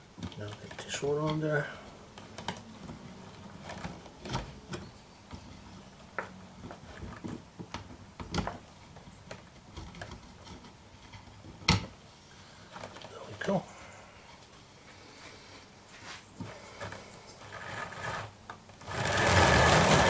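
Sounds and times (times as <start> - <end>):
small clicks and knocks on wood: 2.1 - 12.0.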